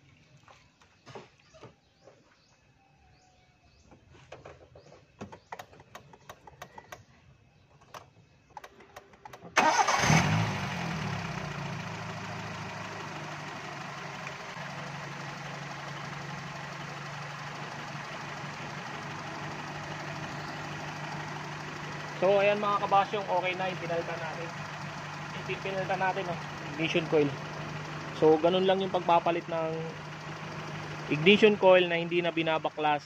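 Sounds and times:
car engine starting and idling: 7.8s - 33.0s.

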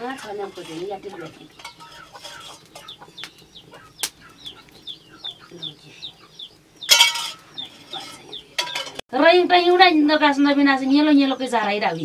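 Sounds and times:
harsh scrape: 0.0s - 2.9s, 7.1s - 9.0s
chickens clucking and cheeping: 0.5s - 9.0s.

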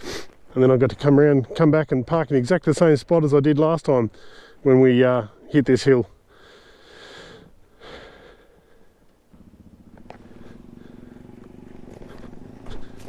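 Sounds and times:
motorcycle engine running: 8.1s - 13.0s.

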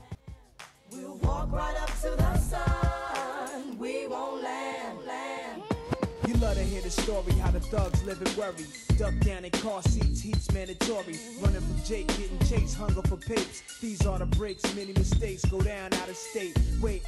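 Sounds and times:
rapping over a beat: 0.9s - 3.6s, 5.6s - 17.0s
deep bass and drum hits: 2.2s - 3.0s, 6.4s - 8.1s, 8.9s - 10.6s, 11.5s - 13.1s.

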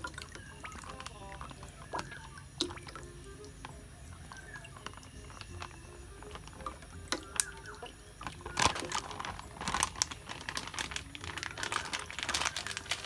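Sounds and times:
plastic packet crinkling: 4.4s - 13.0s.

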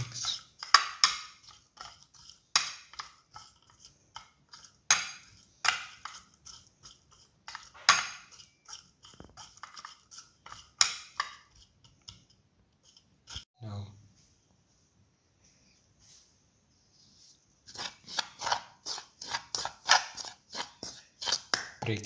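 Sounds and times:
metal spoon scraping a bowl: 0.0s - 13.5s, 17.6s - 21.8s.

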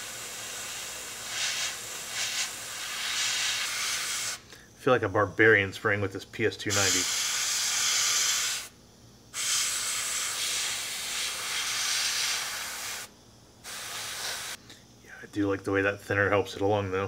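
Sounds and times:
airbrush spraying air hiss: 0.0s - 4.5s, 6.7s - 14.6s.

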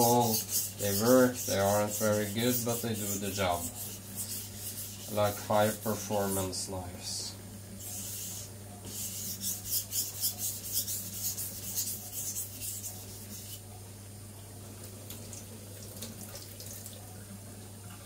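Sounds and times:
knife scraping on whetstone: 0.0s - 6.4s, 7.8s - 13.6s.

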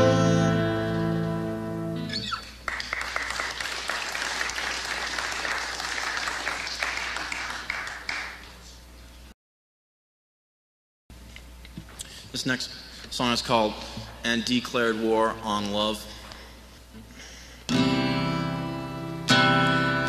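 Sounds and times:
acoustic guitar chord: 0.0s - 2.1s, 17.7s - 20.0s
audience clapping: 2.4s - 8.8s.

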